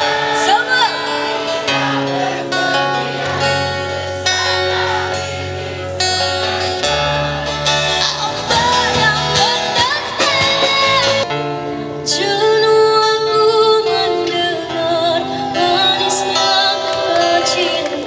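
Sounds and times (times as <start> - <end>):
bass guitar: 0.0 - 12.1
electric guitars: 0.0 - 18.0
girl singing into a microphone: 8.0 - 11.3, 12.0 - 18.0.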